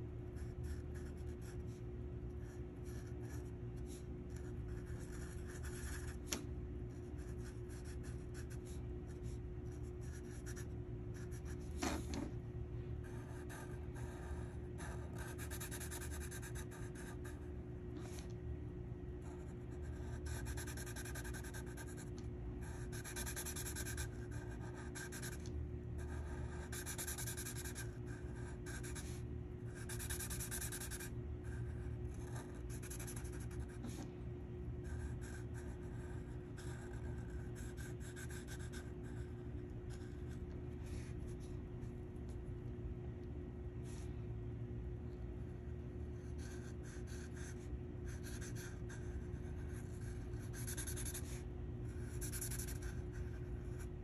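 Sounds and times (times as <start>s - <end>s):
steady low hum: 0.0s - 54.0s
marker rubbing on paper: 48.2s - 51.4s, 52.0s - 53.9s.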